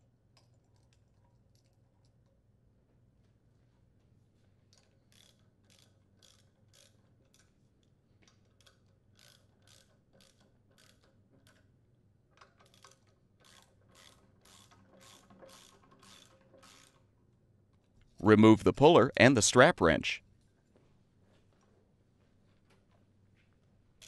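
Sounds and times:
ratchet wrench clicking: 0:05.1 - 0:07.0, 0:08.5 - 0:11.1, 0:12.6 - 0:17.0.

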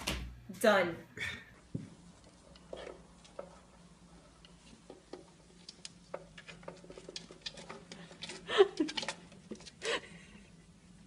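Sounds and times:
faint clicks and taps: 0:01.7 - 0:09.8.

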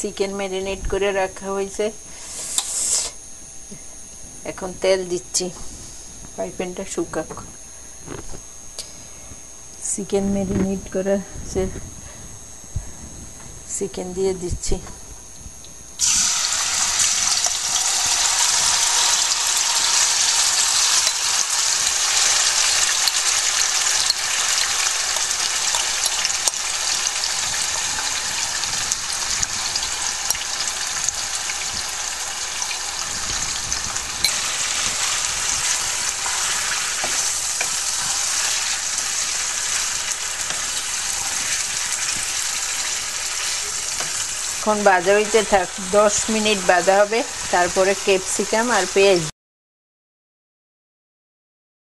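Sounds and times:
chicken sizzling in hot oil: 0:16.0 - 0:49.2.

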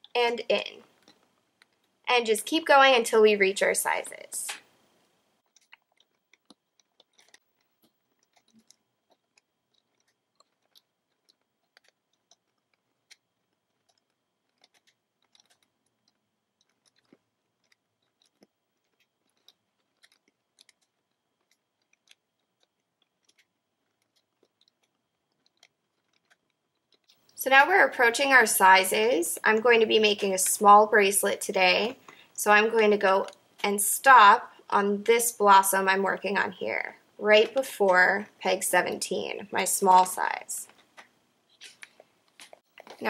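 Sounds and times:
rubber bands clicking and snapping: 0:05.4 - 0:27.4, 0:40.6 - 0:43.0.

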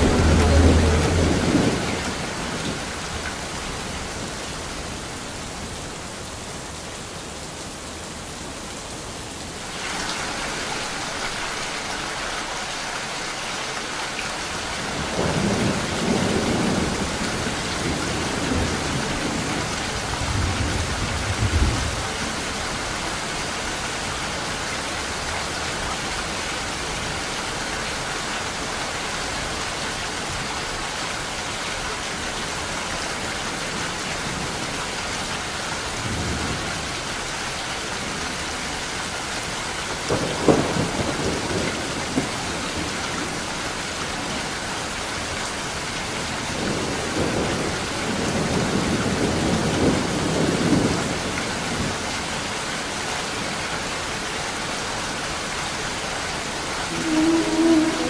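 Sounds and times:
thunder rumbling: 0:00.0 - 0:03.2, 0:14.8 - 0:22.4, 0:40.1 - 0:43.4, 0:56.9 - 0:58.0
heavy rain: 0:00.0 - 0:58.0.

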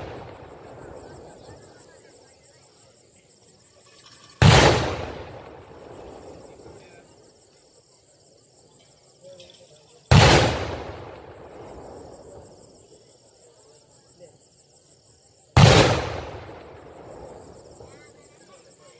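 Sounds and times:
firework explosions: 0:00.0 - 0:01.8, 0:04.3 - 0:07.0, 0:10.0 - 0:13.0, 0:15.4 - 0:18.2.

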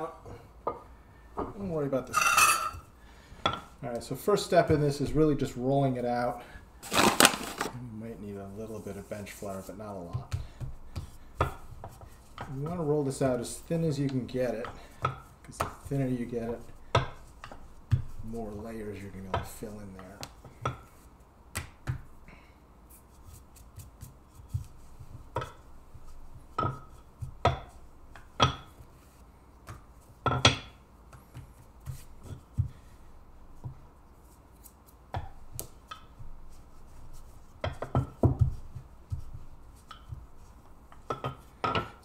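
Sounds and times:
rolling pin rolling dough on stone: 0:08.7 - 0:22.2, 0:23.1 - 0:42.0
knocks and taps of rolling pin: 0:10.0 - 0:12.8, 0:16.9 - 0:18.2, 0:21.5 - 0:22.1, 0:23.8 - 0:28.9, 0:29.6 - 0:32.8, 0:35.1 - 0:36.4, 0:37.6 - 0:42.0.

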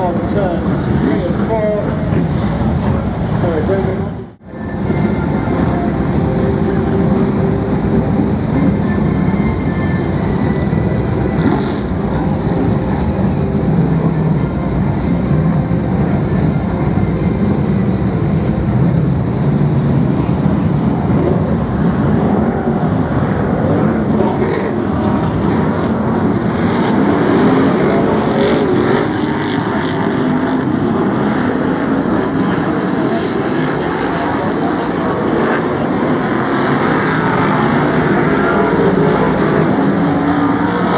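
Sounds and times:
stock car engines running: 0:00.0 - 0:40.9.

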